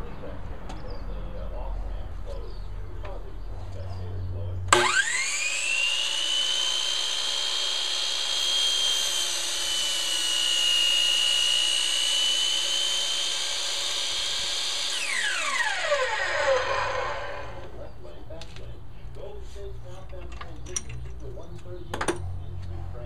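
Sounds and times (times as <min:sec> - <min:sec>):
saw blade cutting wood: 0:04.7 - 0:17.6
miter saw motor whining: 0:04.7 - 0:17.7.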